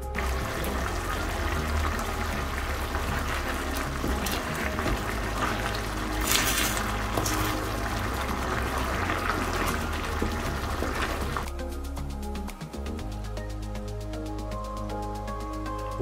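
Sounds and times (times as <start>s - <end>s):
background music: 0.0s - 16.0s
sauce bubbling in pan: 0.1s - 11.5s.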